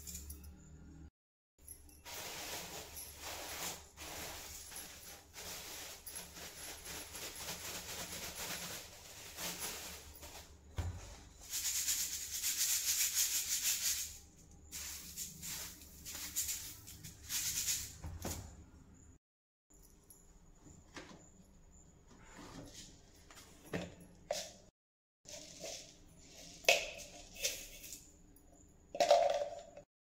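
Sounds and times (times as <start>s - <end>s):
seeds rustling in metal sieve: 2.0s - 18.0s, 25.3s - 27.9s
sieve shaken rattling hiss: 2.0s - 18.4s.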